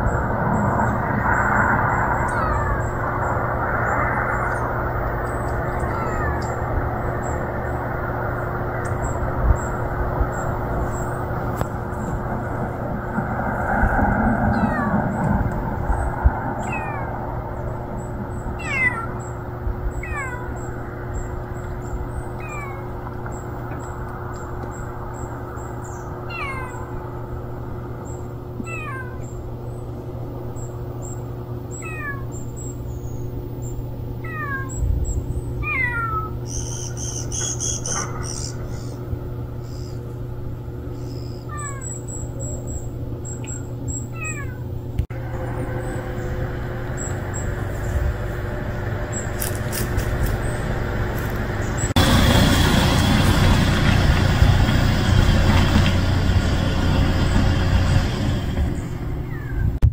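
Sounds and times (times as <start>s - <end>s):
cat mewing: 2.2s - 3.0s, 5.7s - 6.6s, 14.5s - 15.1s, 16.6s - 17.2s, 18.6s - 19.2s, 20.0s - 20.6s, 22.4s - 22.9s, 26.3s - 27.0s, 28.6s - 29.2s, 31.8s - 32.3s, 34.2s - 34.8s, 35.6s - 36.4s, 41.5s - 41.9s, 44.1s - 44.7s.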